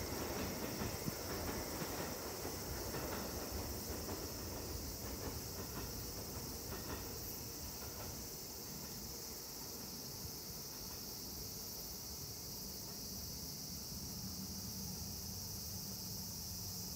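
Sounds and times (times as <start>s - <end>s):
train wheels clacking on rail joints: 0.0s - 9.2s
insects buzzing: 0.0s - 16.9s
train rumbling: 0.0s - 16.9s.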